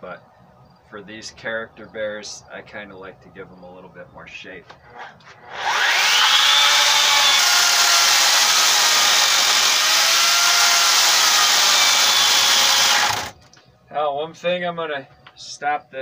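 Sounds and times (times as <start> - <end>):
electric chainsaw cutting wood: 4.9 - 13.4.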